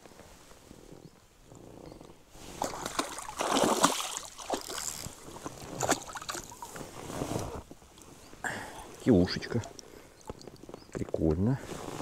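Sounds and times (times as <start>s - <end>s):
water splashing: 2.5s - 6.8s.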